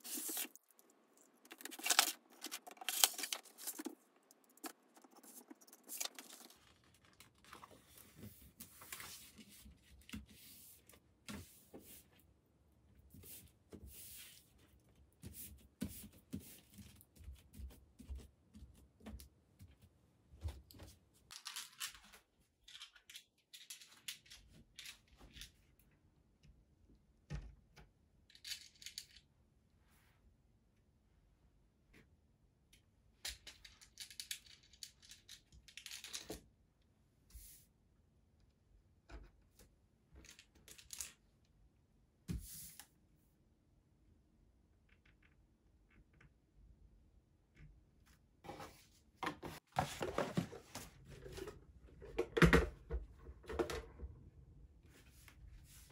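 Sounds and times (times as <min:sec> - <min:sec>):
cardboard box and paper rustling: 0:01.5 - 0:04.0, 0:49.4 - 0:51.4.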